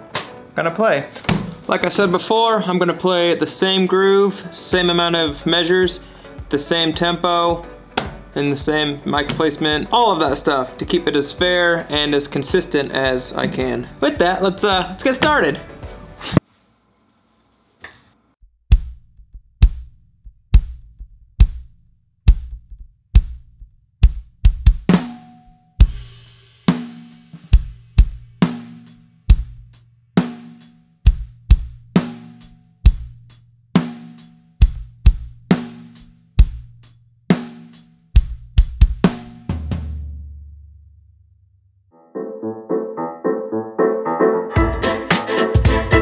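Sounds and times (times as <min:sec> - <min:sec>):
drum kit playing groove: 0:04.6 - 0:16.4, 0:24.0 - 0:40.4, 0:44.5 - 0:46.0
low kick drum boom: 0:18.4 - 0:25.0, 0:27.6 - 0:28.4, 0:29.3 - 0:29.7, 0:31.1 - 0:32.0, 0:32.9 - 0:33.2, 0:34.6 - 0:35.5, 0:36.4 - 0:36.8, 0:38.2 - 0:39.2.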